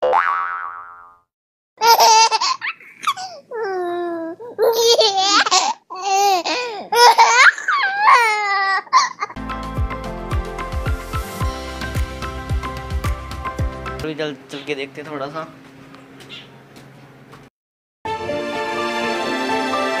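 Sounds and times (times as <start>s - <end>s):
boys laughing and squealing: 7.1s - 9.4s
background music with a beat: 9.4s - 14.0s.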